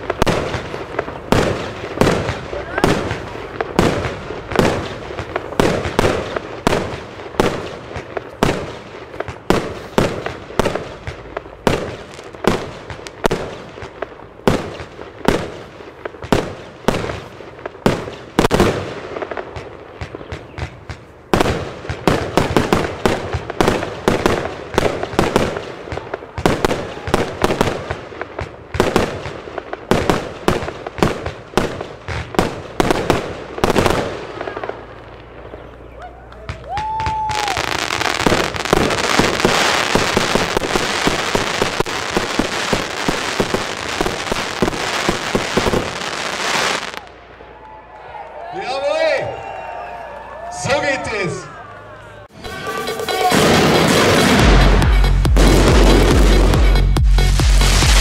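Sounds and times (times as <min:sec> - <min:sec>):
firework cake firing shots: 0:00.0 - 0:35.8, 0:53.2 - 0:56.7.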